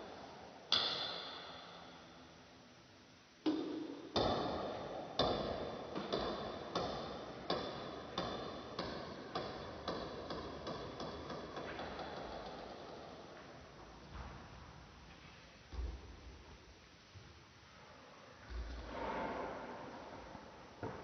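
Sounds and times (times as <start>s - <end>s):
ping-pong ball clicking: 5.2s - 13.0s.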